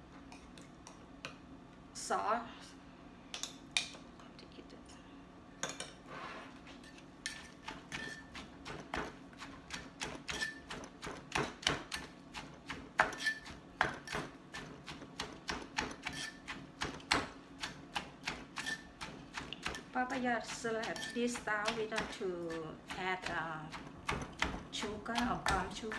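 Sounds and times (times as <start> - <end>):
pestle knocking in a mortar: 7.7 - 25.9.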